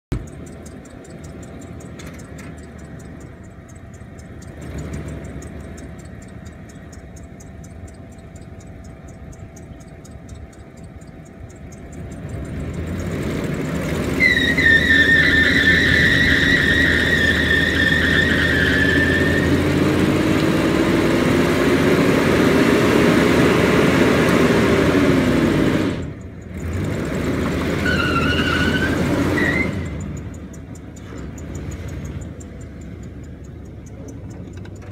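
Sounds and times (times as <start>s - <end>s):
tyre chirps: 0.0s - 21.8s, 25.4s - 34.9s
engine rumbling and revving: 0.0s - 34.9s
tyres squealing: 13.4s - 20.3s, 27.6s - 30.1s.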